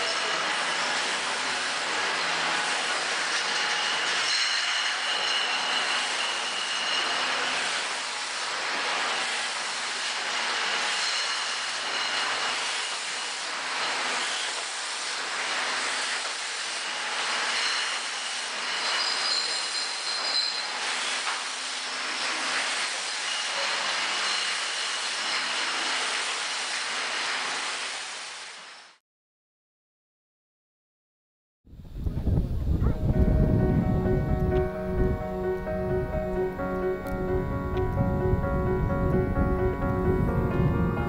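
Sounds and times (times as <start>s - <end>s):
thin high squealing: 17.4s - 21.2s.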